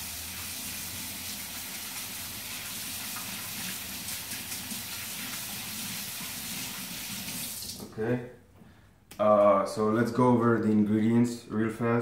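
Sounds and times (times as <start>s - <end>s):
faucet water running into sink: 0.0s - 7.8s.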